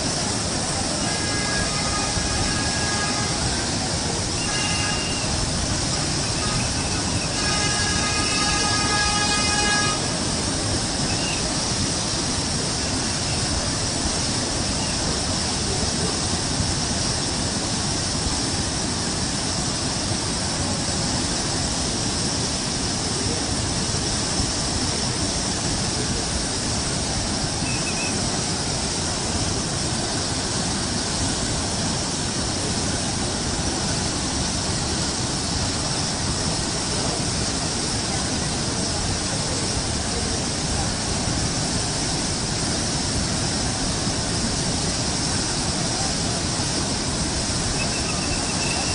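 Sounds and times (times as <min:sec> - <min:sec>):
floodwater rushing: 0:00.0 - 0:48.9
brief pitched tone: 0:27.6 - 0:28.2, 0:47.8 - 0:48.9.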